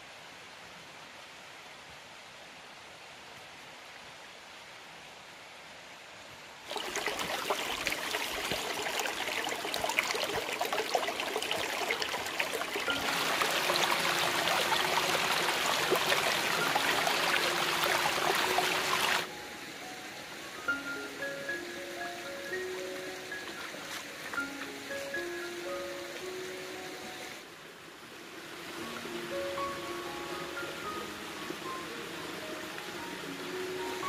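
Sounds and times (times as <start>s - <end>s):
faint outdoor hiss: 0.0s - 34.0s
stream splashing over rocks: 6.6s - 21.4s, 22.0s - 34.0s.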